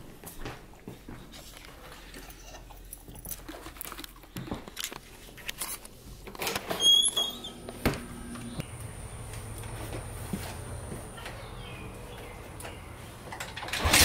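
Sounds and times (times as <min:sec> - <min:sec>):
camera handling rustle: 0:04.7 - 0:06.0
door squeaking open: 0:06.4 - 0:07.7.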